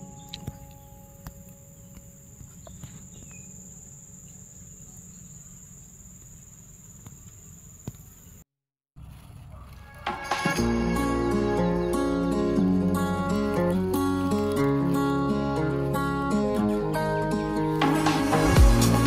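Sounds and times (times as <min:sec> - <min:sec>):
insect trilling: 0:00.0 - 0:08.4
low outdoor rumble: 0:09.0 - 0:19.0.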